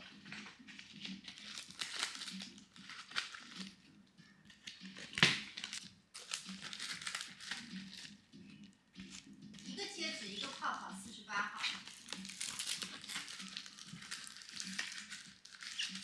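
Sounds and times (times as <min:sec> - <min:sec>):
plastic packaging crinkling: 0:00.2 - 0:03.7, 0:04.7 - 0:08.2, 0:10.0 - 0:10.8, 0:11.6 - 0:16.0.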